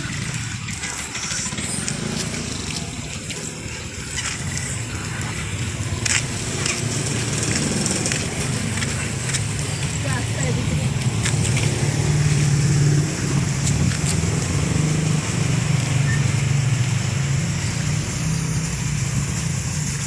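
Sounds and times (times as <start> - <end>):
vehicle engine droning: 0.0 - 20.0.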